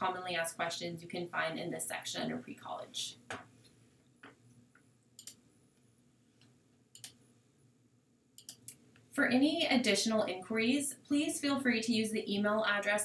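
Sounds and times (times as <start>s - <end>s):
faint computer mouse clicks: 5.2s - 5.4s, 6.4s - 7.2s, 8.4s - 9.1s.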